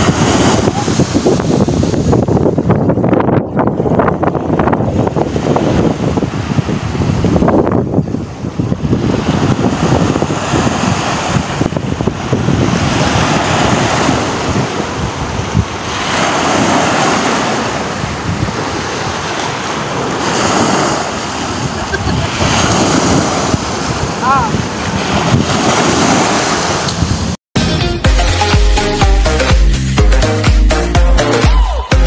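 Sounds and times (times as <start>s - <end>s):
small waves breaking on sand: 0.0s - 2.2s, 8.2s - 27.4s
wind buffeting microphone: 0.0s - 27.4s.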